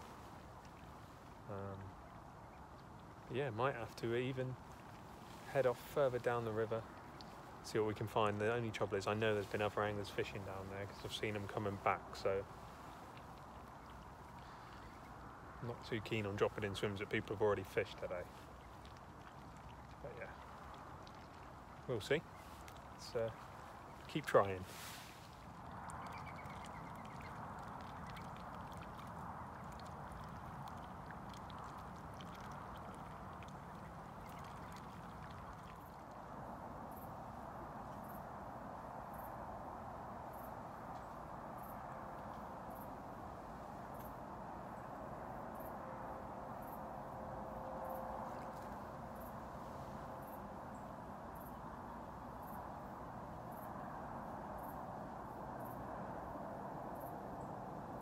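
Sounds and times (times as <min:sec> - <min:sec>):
river rushing hiss: 0:24.3 - 0:25.6.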